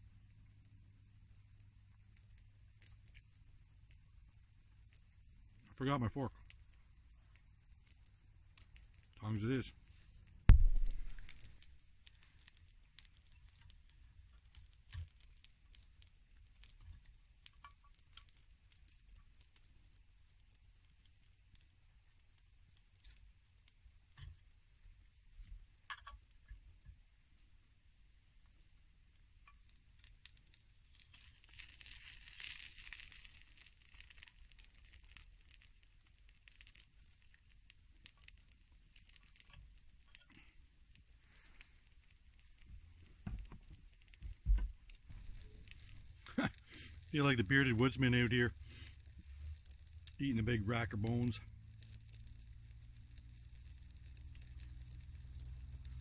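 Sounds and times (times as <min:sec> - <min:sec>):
small pops: 0:00.0 - 0:27.8, 0:28.4 - 0:56.0
meat sizzling on a grill: 0:00.0 - 0:56.0
soft knock: 0:10.5 - 0:11.1.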